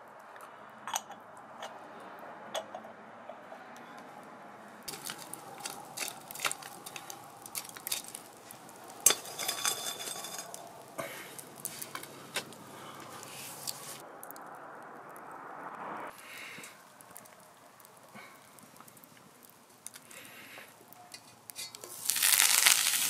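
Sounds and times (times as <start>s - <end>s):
metal utensils clinking on cookware: 4.9s - 10.8s, 11.6s - 12.6s, 21.1s - 22.4s.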